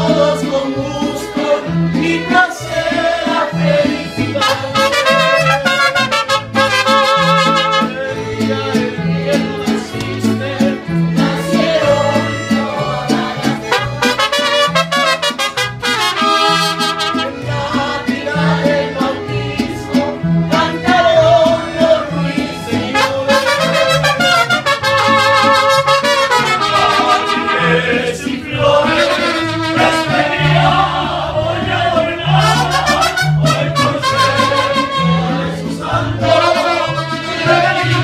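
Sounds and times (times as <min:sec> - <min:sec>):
low bass notes: 0:00.0 - 0:37.1
mariachi band playing: 0:00.0 - 0:38.0
trumpets playing melody: 0:04.3 - 0:08.0, 0:13.6 - 0:17.6, 0:22.8 - 0:27.9, 0:28.8 - 0:30.8, 0:32.3 - 0:35.4, 0:36.2 - 0:38.0.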